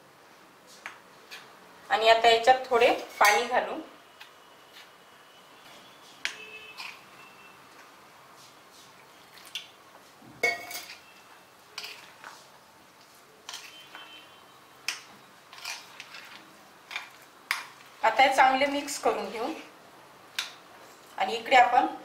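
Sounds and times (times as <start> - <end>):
metal spoon clinking on glass bowl: 10.4 - 11.1.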